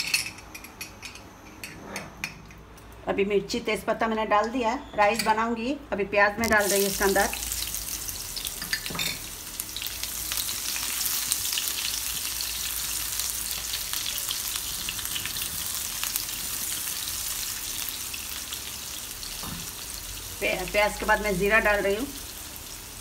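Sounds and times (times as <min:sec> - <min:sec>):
onions sizzling in a pan: 0:06.4 - 0:23.0.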